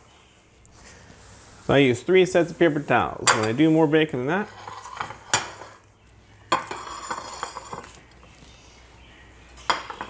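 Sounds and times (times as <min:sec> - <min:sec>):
paper towels rustling: 0:00.0 - 0:04.5
ceramic plate clinking: 0:03.2 - 0:03.6, 0:04.4 - 0:05.8, 0:06.5 - 0:08.0, 0:09.7 - 0:10.0.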